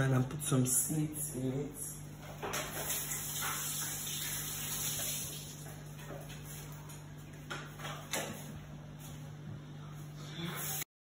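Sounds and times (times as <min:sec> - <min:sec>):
water running from tap: 0:02.3 - 0:06.4.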